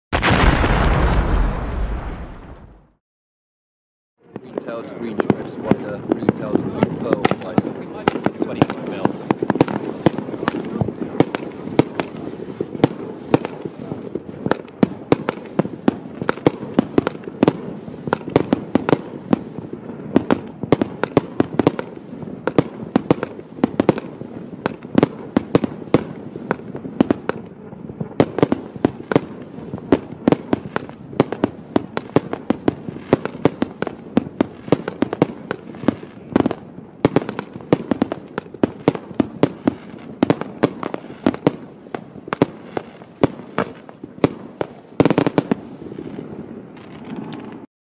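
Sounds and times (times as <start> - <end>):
firework cracks and pops: 0.2 - 3.0, 4.3 - 47.7.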